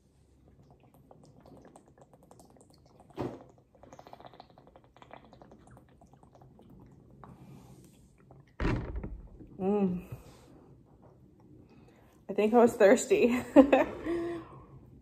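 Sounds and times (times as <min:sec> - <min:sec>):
person gulping water: 0:00.4 - 0:07.4
wet swallowing clicks: 0:00.6 - 0:07.3.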